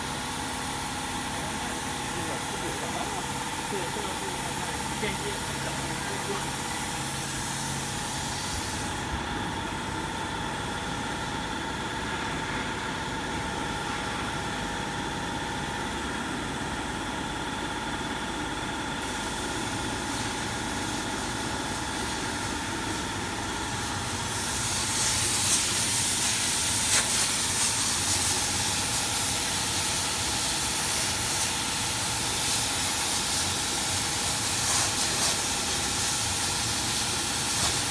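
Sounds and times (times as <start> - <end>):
laser cutter humming and whining: 0.0 - 37.9
air hissing: 24.3 - 37.9.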